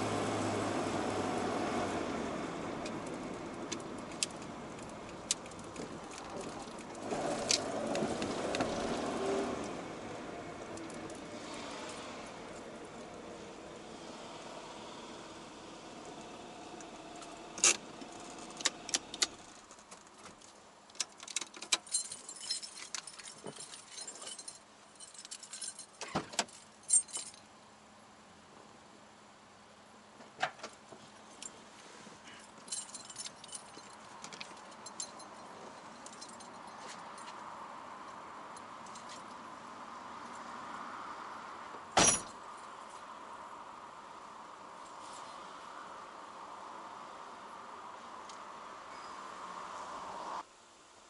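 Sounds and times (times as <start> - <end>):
car keys jangling: 3.6 - 8.0, 17.6 - 27.4, 32.4 - 37.4, 42.0 - 42.4.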